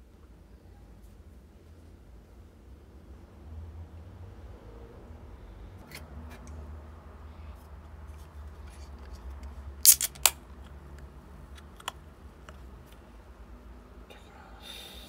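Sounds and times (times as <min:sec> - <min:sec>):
light clicks and handling noise: 0:07.6 - 0:13.1.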